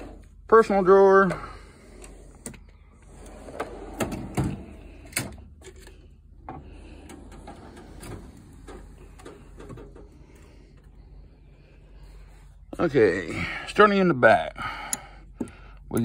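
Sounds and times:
metal drawers sliding: 2.0 - 5.5, 6.6 - 10.3.

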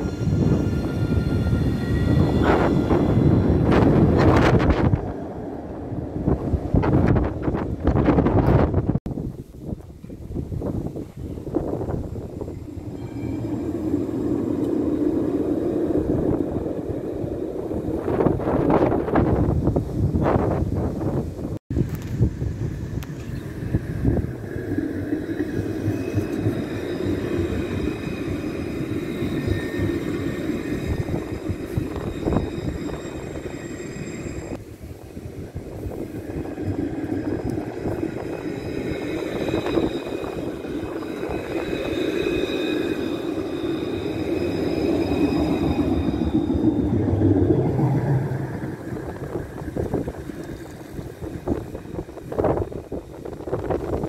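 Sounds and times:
tram wheels rumbling on rails: 0.0 - 54.0
steady high tones: 23.4 - 52.3.

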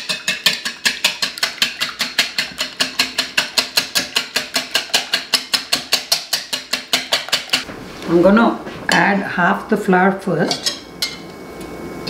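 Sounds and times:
whisk clicking against bowl: 0.0 - 7.6.

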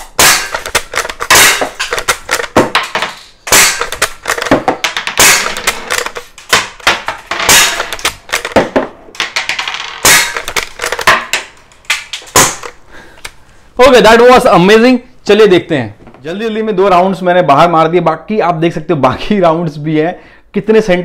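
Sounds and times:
air rifle shots: 0.0 - 8.8, 10.0 - 11.4.

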